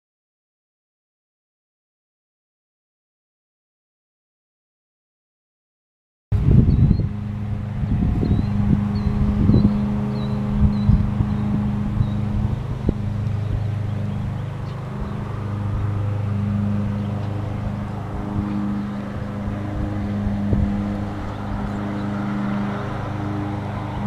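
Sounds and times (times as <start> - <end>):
motor droning: 6.4 - 24.0.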